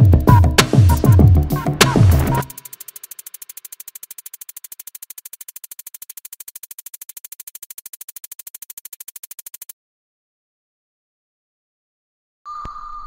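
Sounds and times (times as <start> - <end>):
rapid electronic pulsing: 0.0 - 9.7.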